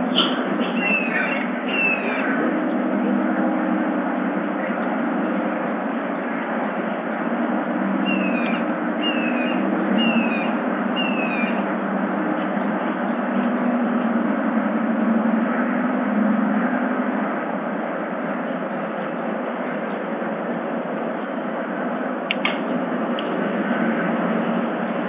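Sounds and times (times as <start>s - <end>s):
low hum: 0.0s - 25.0s
bird whistling falling notes: 0.2s - 2.2s, 8.0s - 11.6s.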